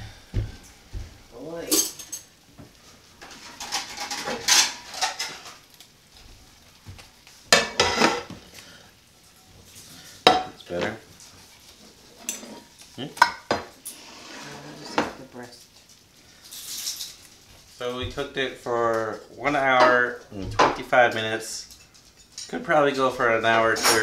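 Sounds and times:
knife and fork scraping a platter: 11.7s - 12.7s, 13.8s - 15.0s.

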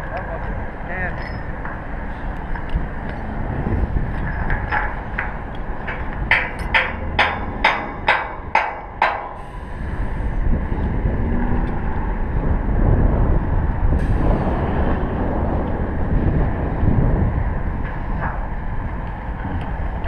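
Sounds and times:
wind rumbling on microphone: 0.0s - 20.0s
metal-on-metal strikes: 4.3s - 9.5s.

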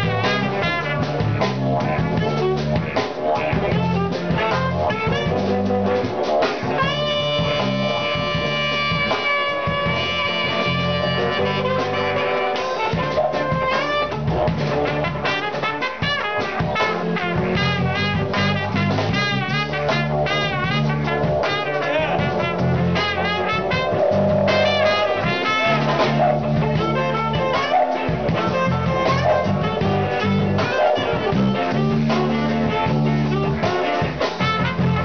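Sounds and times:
trumpet and saxophones playing: 0.0s - 35.0s
didgeridoo drone: 17.1s - 33.8s.

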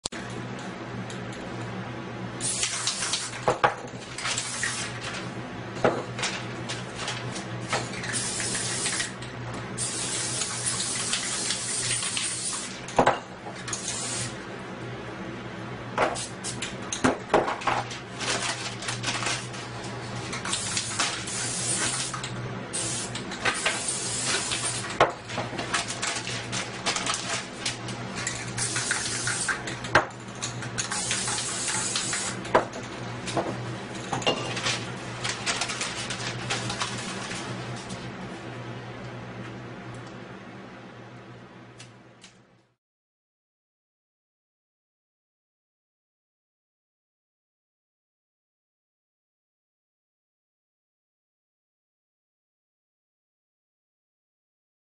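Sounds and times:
spray paint can hissing: 2.4s - 3.4s, 8.1s - 9.1s, 9.8s - 12.7s, 13.8s - 14.3s, 20.5s - 22.1s, 22.7s - 25.0s, 28.6s - 29.6s, 30.9s - 32.4s.

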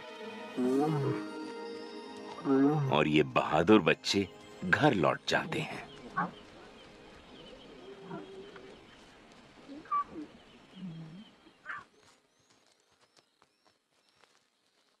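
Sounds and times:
lions calling softly: 0.6s - 1.3s, 6.0s - 6.4s, 7.6s - 8.8s, 9.7s - 11.9s.

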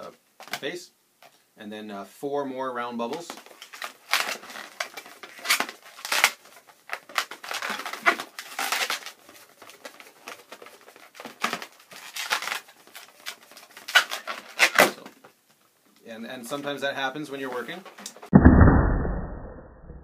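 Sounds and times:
balloon latex squeaking and rubbing: 3.7s - 15.1s.

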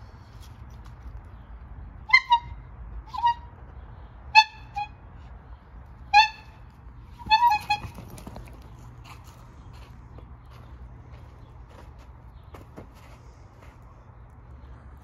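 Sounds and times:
squeeze-bulb bicycle horn honking: 7.2s - 8.0s.

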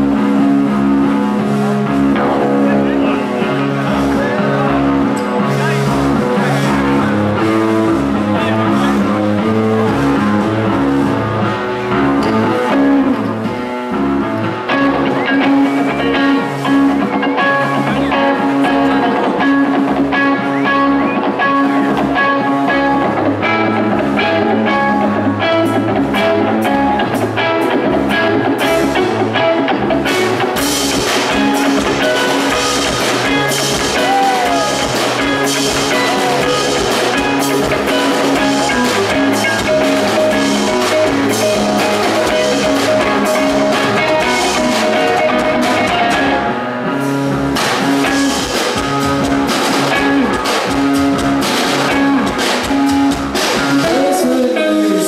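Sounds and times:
bass guitar: 0.0s - 55.0s
electric guitar: 0.0s - 55.0s
drum kit and cymbals: 29.9s - 54.5s.

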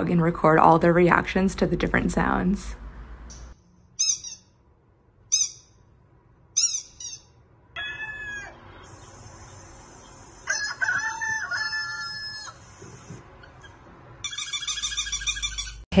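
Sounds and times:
rooster crowing: 7.8s - 8.8s, 10.4s - 12.7s.

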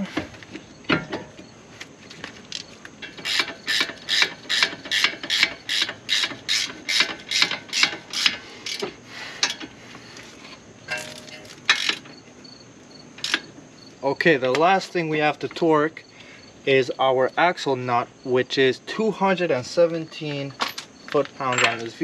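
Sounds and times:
ratchet wrench clicking: 3.2s - 8.8s, 11.1s - 12.0s, 13.2s - 13.5s.

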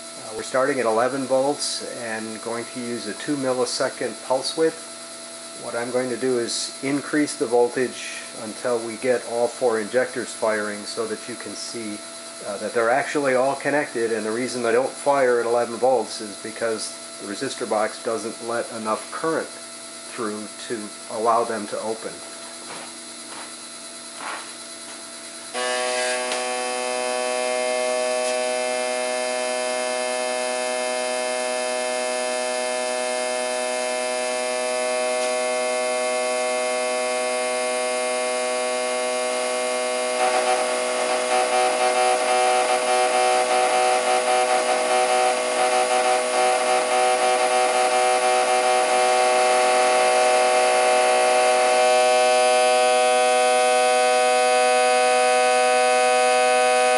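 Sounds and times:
fuel injectors buzzing: 22.2s - 56.9s.

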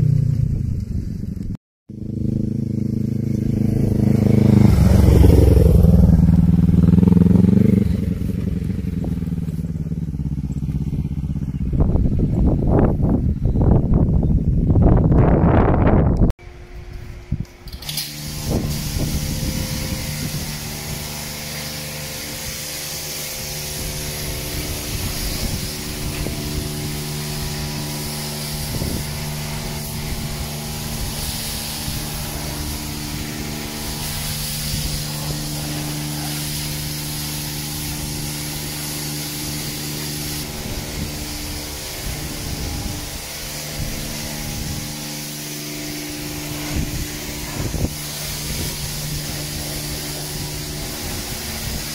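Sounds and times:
pressure washer pump humming: 1.9s - 13.4s, 16.4s - 51.9s
high-pressure water jet hissing: 2.1s - 11.6s, 17.6s - 51.9s.

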